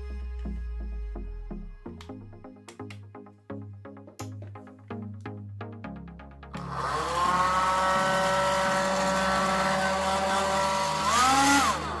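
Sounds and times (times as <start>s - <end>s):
hair dryer air rush: 6.6s - 12.0s
hair dryer motor whine: 6.6s - 12.0s.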